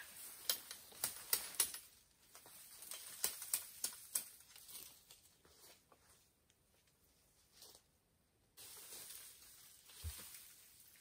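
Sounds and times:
bamboo twigs crackling and snapping: 0.0 - 5.5, 8.6 - 11.0.

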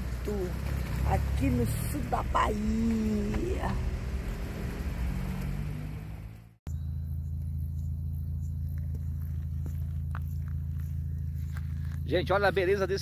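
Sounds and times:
road and wind hiss: 0.0 - 6.6
van engine drone: 0.0 - 13.0.

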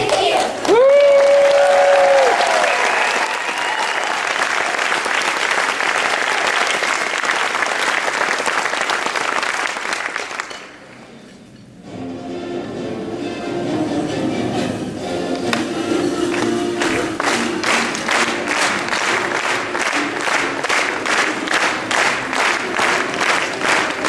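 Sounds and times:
high held shout: 0.0 - 4.2
audience applauding and cheering: 0.0 - 10.6, 15.4 - 24.0.

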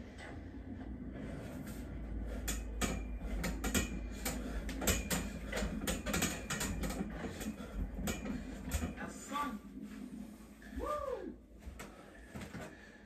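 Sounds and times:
low rumble: 0.0 - 6.0
metal dip bars clicking and rattling: 2.4 - 9.0.

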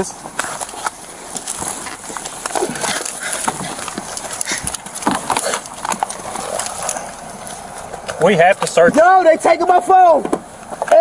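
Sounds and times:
rustling against microphone: 0.0 - 8.3
footsteps: 0.0 - 9.1.

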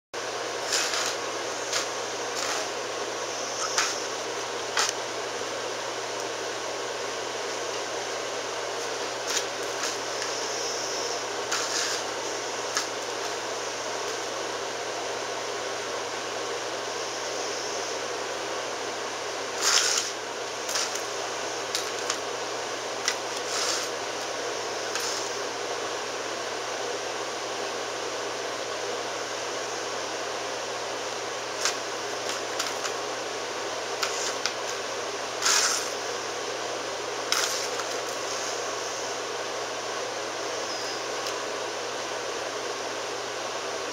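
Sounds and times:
small motor whirring: 0.6 - 5.0, 8.8 - 14.4, 19.6 - 22.2, 23.0 - 25.4, 33.9 - 34.7, 35.4 - 36.0.

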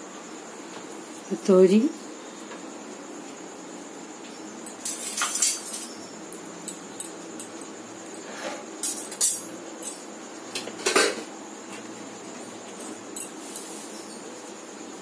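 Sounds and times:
steel utensils clinking: 4.7 - 6.0, 8.8 - 10.1.

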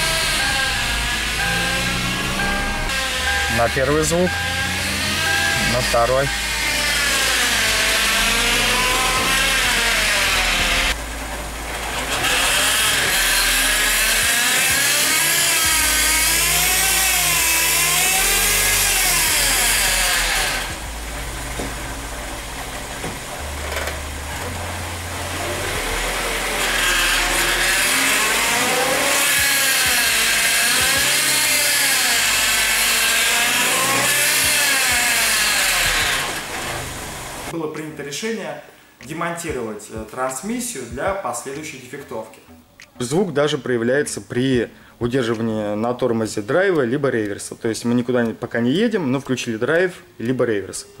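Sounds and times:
transmission whining: 0.0 - 37.6.

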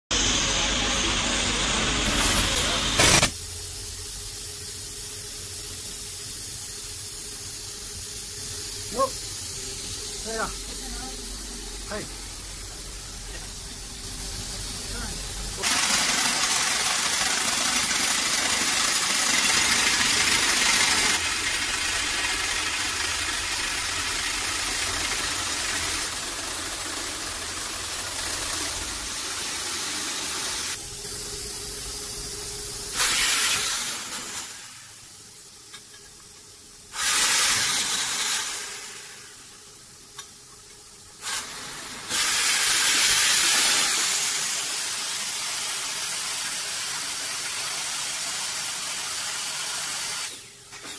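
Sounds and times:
drill rig loud hiss: 0.1 - 50.9.

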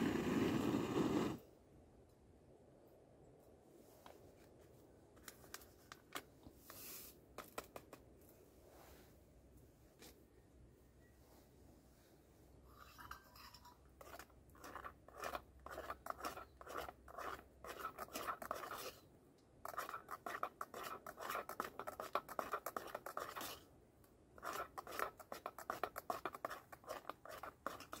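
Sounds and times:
quick scratching strokes: 14.0 - 19.0, 19.7 - 23.6.

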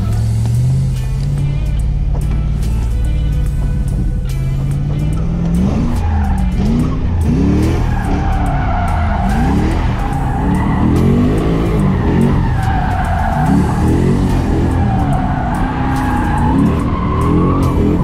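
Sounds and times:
background music: 0.0 - 18.0
car engine revving: 0.0 - 18.0
tyres squealing: 4.6 - 18.0.

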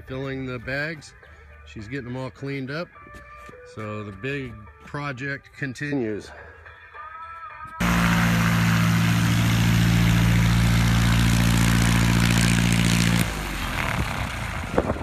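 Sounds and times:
propeller engine running: 7.8 - 15.0.

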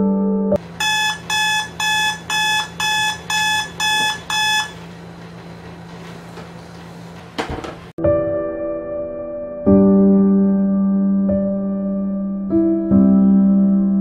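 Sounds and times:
electronic alarm beeping: 0.8 - 4.8.

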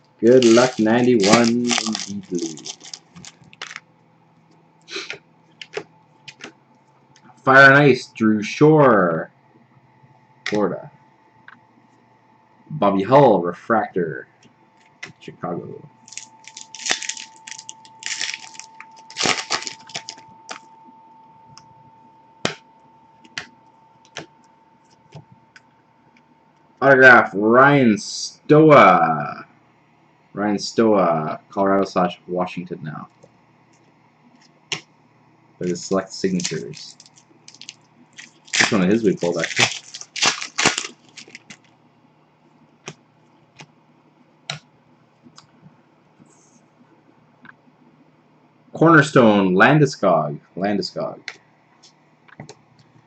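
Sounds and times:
cards being shuffled by hand: 0.2 - 3.8, 4.9 - 6.5, 16.0 - 20.6, 35.6 - 41.7
foil wrapper crinkling and tearing: 0.2 - 3.8, 16.0 - 20.6, 35.6 - 41.7.

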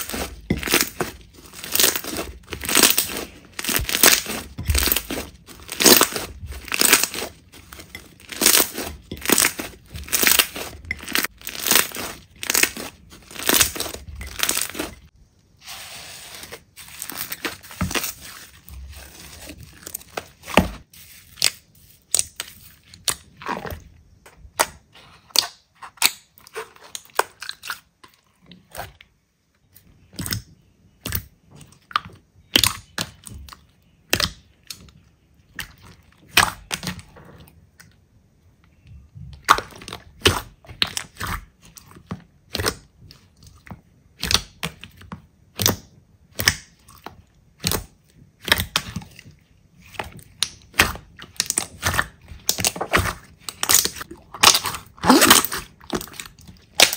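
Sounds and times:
slime popping and crackling: 0.0 - 15.1, 44.1 - 49.2, 49.8 - 56.9.

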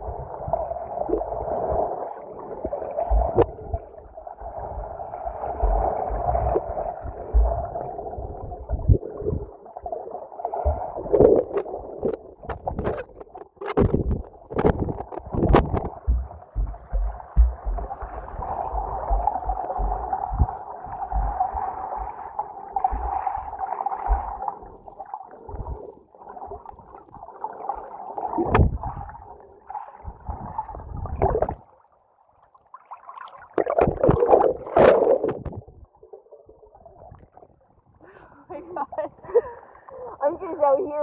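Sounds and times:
underwater gurgling and sloshing: 0.0 - 41.0
low underwater thumps: 3.0 - 9.4, 10.6 - 25.8, 28.4 - 29.2, 33.6 - 35.9.

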